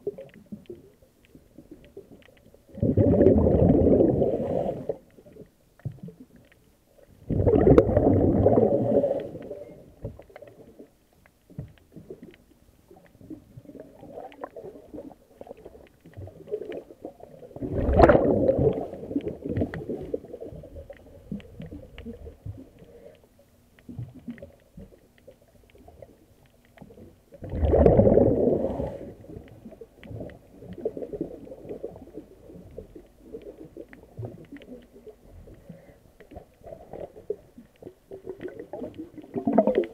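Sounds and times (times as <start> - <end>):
faint crackling ticks: 0.0 - 28.0, 28.6 - 39.9
underwater breath bubbling: 2.7 - 5.2, 7.2 - 10.0, 16.5 - 22.1, 27.4 - 29.4.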